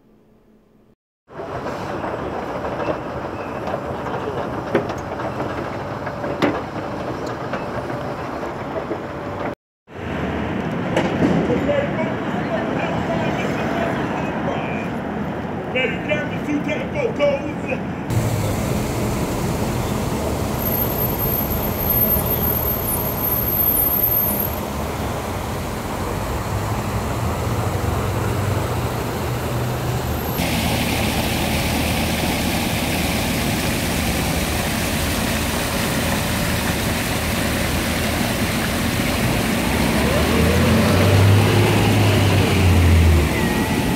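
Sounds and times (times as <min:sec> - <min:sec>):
street traffic: 0:00.0 - 0:43.9
fountain water jets splashing: 0:18.1 - 0:27.8, 0:30.3 - 0:43.9.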